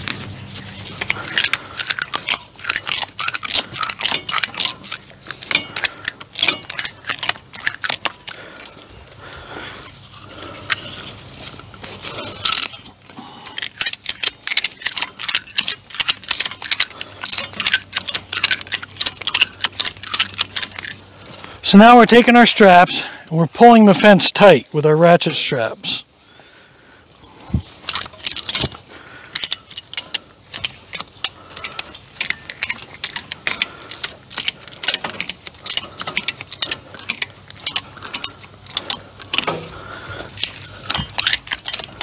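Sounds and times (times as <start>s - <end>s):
ratchet strap clicking: 0.0s - 8.8s, 9.8s - 21.5s, 27.6s - 42.0s.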